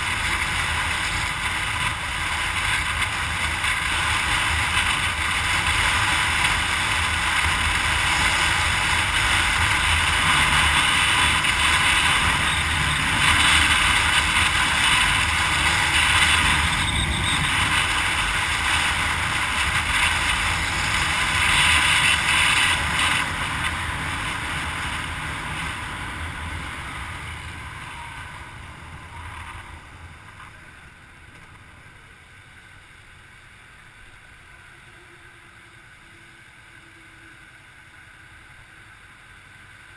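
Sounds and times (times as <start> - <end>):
vehicle wind and road noise: 0.0 - 39.9.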